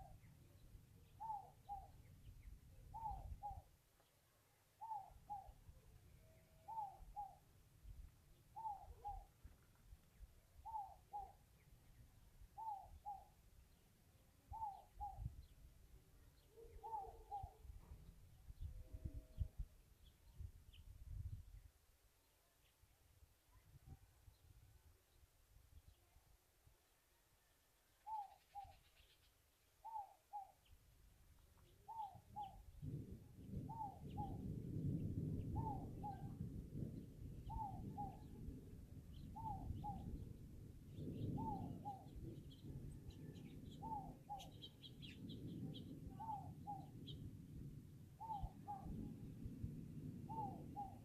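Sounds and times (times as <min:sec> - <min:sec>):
thunder rumbling: 0:32.6 - 0:51.0.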